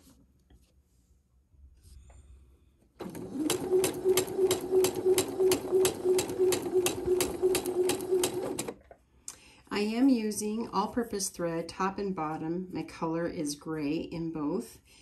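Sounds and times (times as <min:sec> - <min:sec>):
sewing machine motor hum: 0:03.0 - 0:08.8.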